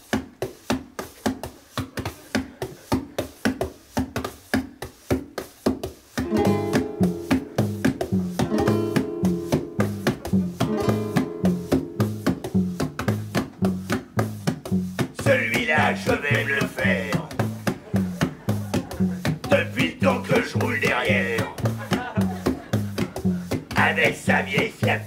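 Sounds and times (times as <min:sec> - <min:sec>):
bass guitar: 0:06.2 - 0:25.0
guitar strumming: 0:06.2 - 0:25.0.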